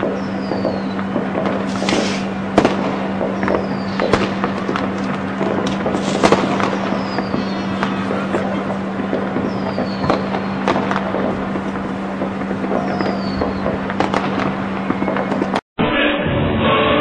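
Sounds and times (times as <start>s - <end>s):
fireworks bangs and crackling: 0.0s - 15.6s
steady low hum: 0.0s - 15.6s
falling whistle: 9.5s - 10.7s, 12.8s - 13.7s.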